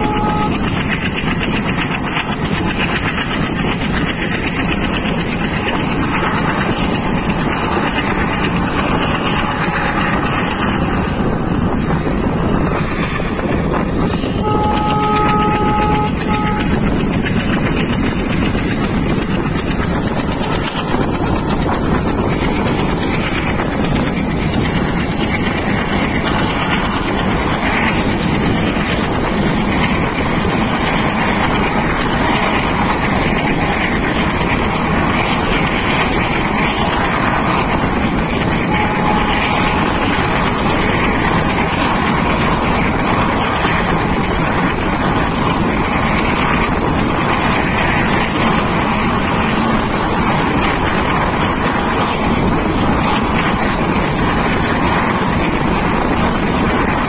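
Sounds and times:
locomotive horn: 0.0 - 0.8, 14.4 - 17.0, 38.3 - 40.6
train and wind rushing: 0.0 - 57.0.

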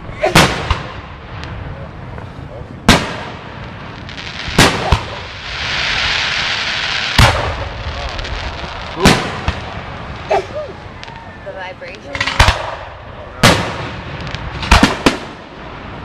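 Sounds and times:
steady hiss: 1.0 - 16.0
firework shells bursting: 2.9 - 10.3, 12.0 - 15.4.

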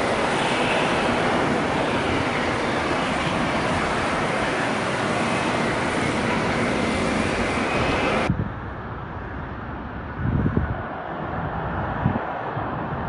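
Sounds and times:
dull rumble of landing aircraft: 0.0 - 13.0
jet engines roaring: 0.0 - 13.0.

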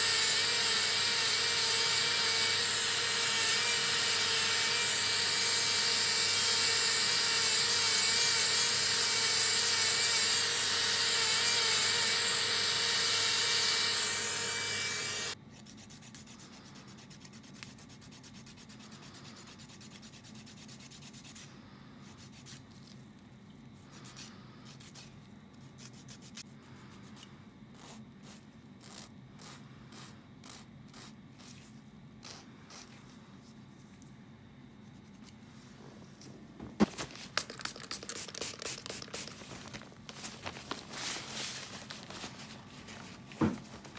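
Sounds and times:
nail drill grinding: 0.0 - 15.4.

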